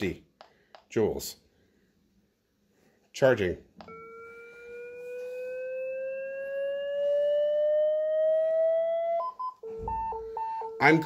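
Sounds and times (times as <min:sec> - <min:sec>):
defibrillator charging tone rising: 0:03.8 - 0:11.0
two-note beeping: 0:03.8 - 0:11.0.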